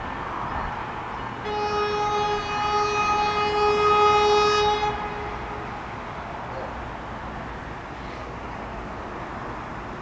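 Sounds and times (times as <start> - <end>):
train running noise: 0.0 - 10.0
train horn: 1.4 - 6.3.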